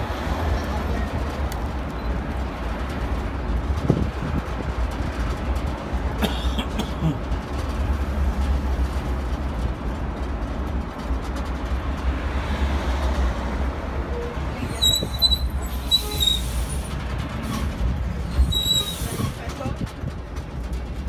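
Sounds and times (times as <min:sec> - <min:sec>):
road train rumble: 0:00.0 - 0:21.0.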